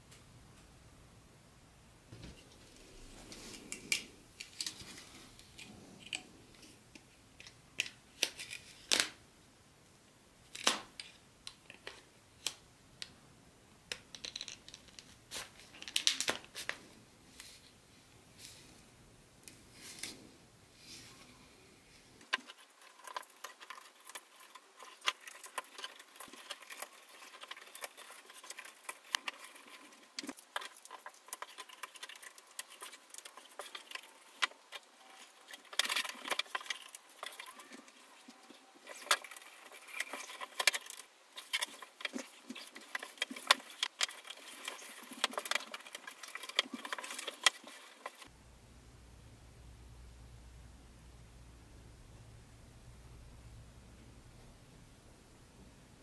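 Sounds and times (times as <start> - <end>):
small hard objects clicking: 13.9 - 16.4.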